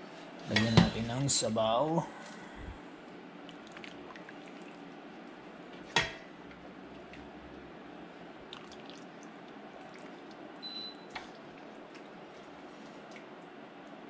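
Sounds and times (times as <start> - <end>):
ladle clinking on dishware: 0.5 - 1.1
broth pouring and dripping: 3.4 - 5.6, 8.4 - 14.0.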